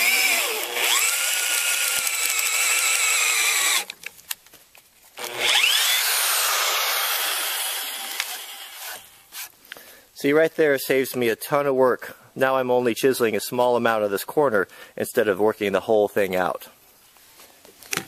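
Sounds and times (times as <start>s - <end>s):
drill boring into wood: 0.0s - 4.0s, 5.2s - 9.2s.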